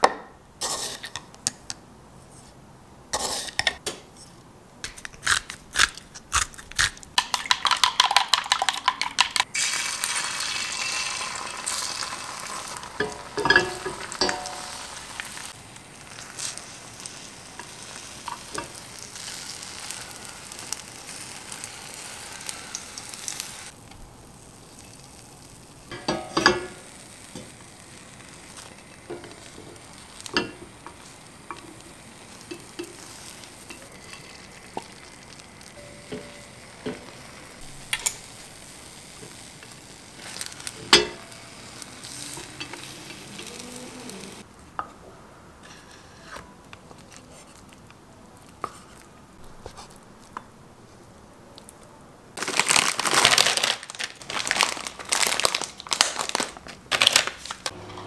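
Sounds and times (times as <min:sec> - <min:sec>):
egg sizzling in a pan: 0:04.9 - 0:44.5
packet crinkling: 0:52.4 - 0:57.7.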